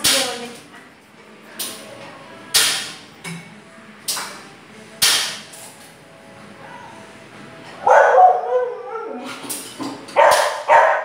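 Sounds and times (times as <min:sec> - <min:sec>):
dog barking and yipping: 0:07.8 - 0:09.1, 0:10.2 - 0:11.0.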